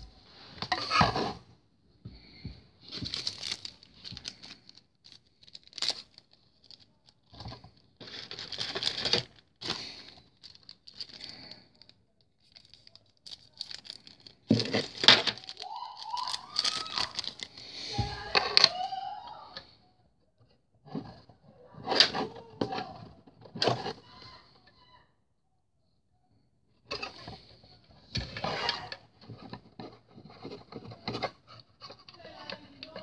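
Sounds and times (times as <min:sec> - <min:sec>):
plastic parts clicking and knocking: 0:02.4 - 0:18.8, 0:26.9 - 0:33.0
plastic packaging crinkling: 0:02.9 - 0:18.6.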